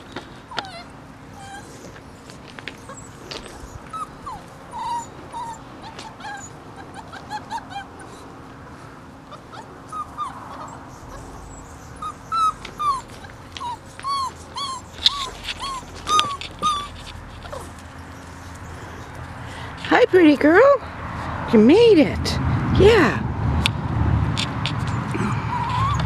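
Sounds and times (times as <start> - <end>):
puppy whimpering and yipping: 0.4 - 8.4, 9.2 - 19.2, 24.9 - 26.0.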